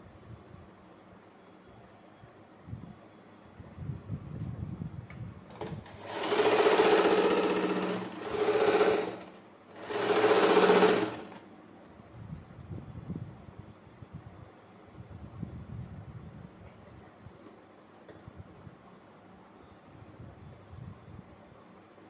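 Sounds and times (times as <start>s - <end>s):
sewing machine stitching: 5.5s - 11.5s.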